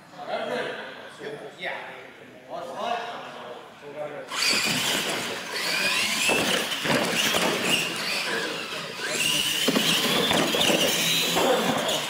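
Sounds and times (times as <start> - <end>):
toy truck motors whining: 4.3 - 12.0.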